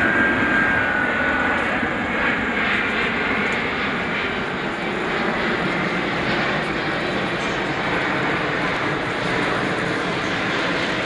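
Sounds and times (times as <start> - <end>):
faint high engine whine: 0.0 - 11.0
jet airliner flying overhead: 0.0 - 11.0
loud steady jet rumble: 0.0 - 11.0.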